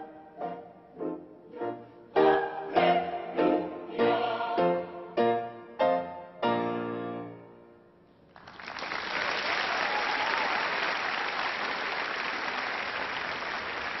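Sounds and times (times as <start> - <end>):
choir singing chord: 1.5 - 5.3
audience applauding: 8.3 - 14.0.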